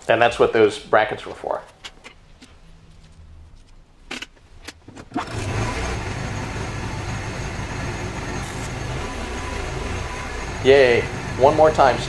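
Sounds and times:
welding machine hum and hiss: 5.9 - 12.0.

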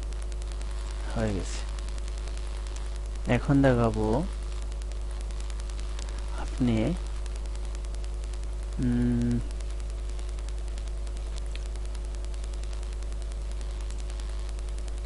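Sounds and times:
electrical mains hum with hiss: 0.0 - 15.0
man saying umm: 8.7 - 9.5.

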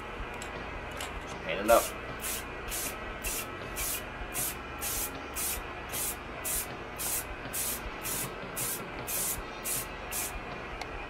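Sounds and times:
aerosol spray can bursts: 2.2 - 10.3.

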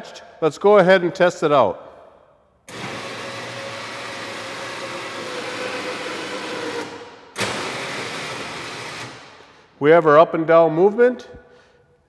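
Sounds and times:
electric winch motor running: 2.7 - 9.5.

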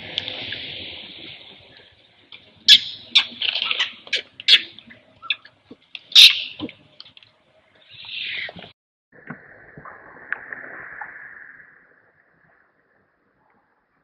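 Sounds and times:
baby monkey squealing: 2.7 - 5.4, 6.1 - 6.7.

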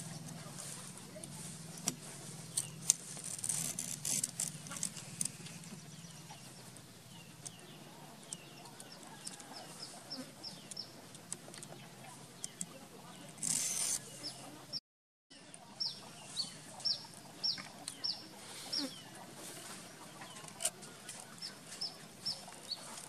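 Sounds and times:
twigs clicking and crackling: 0.1 - 5.8.

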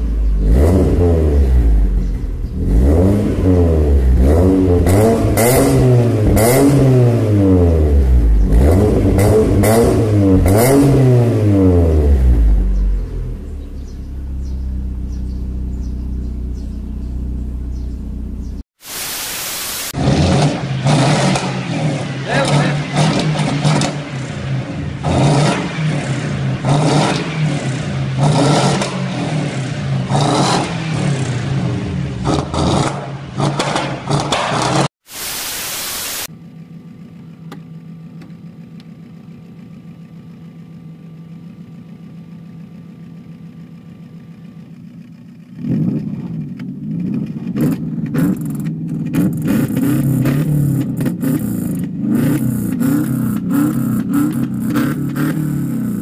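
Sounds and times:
car engine revving through loud exhaust: 0.0 - 18.5, 20.0 - 34.9, 45.5 - 56.0
car engine idling with low hum: 12.1 - 18.6, 36.3 - 49.5
brief hiss: 18.8 - 20.0, 35.0 - 36.3.

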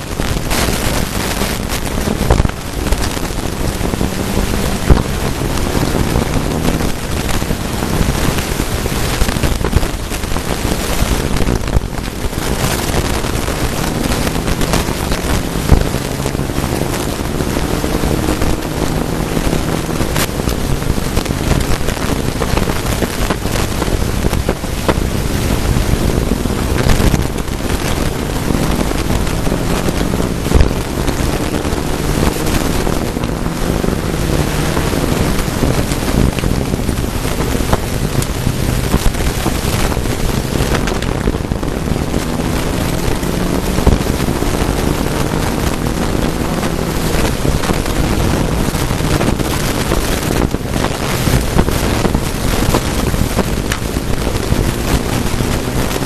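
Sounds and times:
car engine revving through gears: 0.0 - 56.0
gravel road noise hiss: 0.0 - 56.0.

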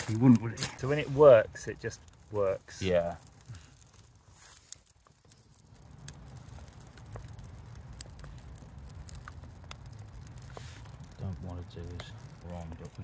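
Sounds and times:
fire crackling and popping: 0.0 - 13.0.

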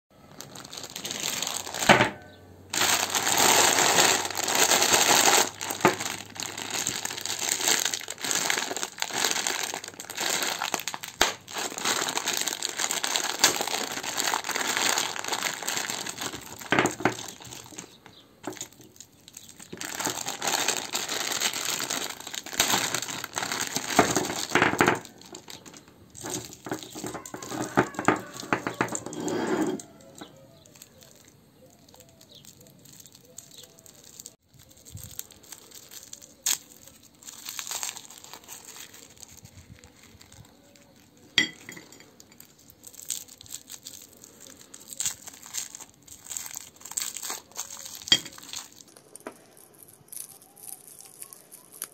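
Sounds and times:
plastic bags crinkling: 0.2 - 51.9
lollipops clattering onto table: 16.0 - 19.0, 23.7 - 31.2, 47.1 - 49.6.

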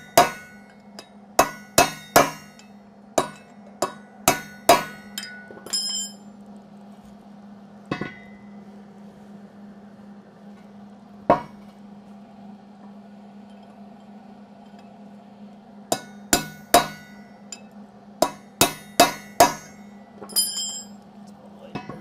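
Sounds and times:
hammer striking metal: 0.0 - 6.2, 15.9 - 20.9.

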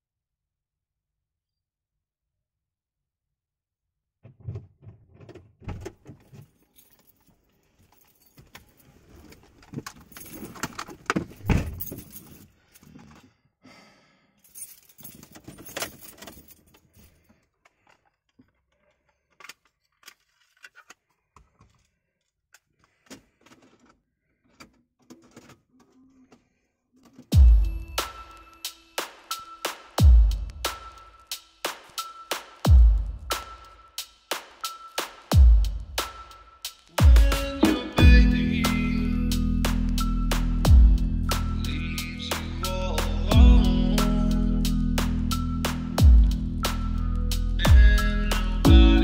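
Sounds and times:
rustling and shifting: 4.3 - 13.3
keys jangling: 6.2 - 12.9, 14.4 - 17.4.

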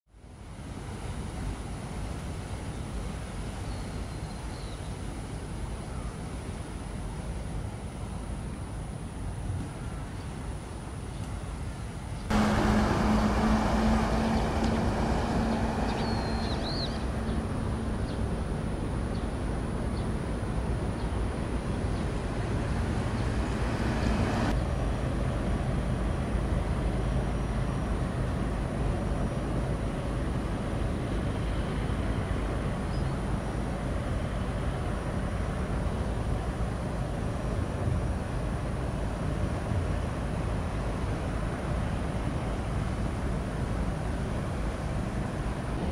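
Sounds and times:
low engine drone: 12.3 - 45.9
high wavering chirp: 15.4 - 18.2.

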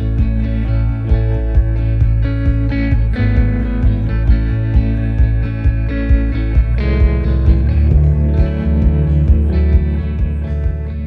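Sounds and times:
background music with bass beat: 0.0 - 11.0.

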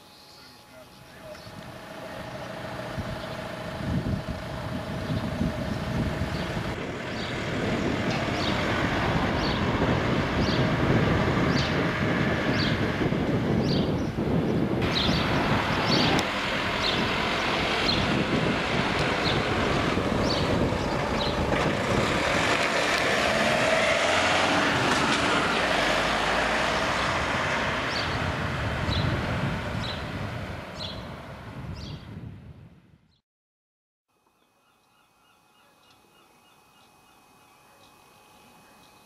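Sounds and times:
van driving past: 1.6 - 14.0, 14.8 - 31.7.

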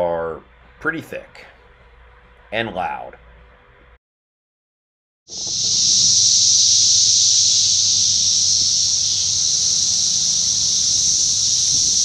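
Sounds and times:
cicadas droning: 5.3 - 12.0.

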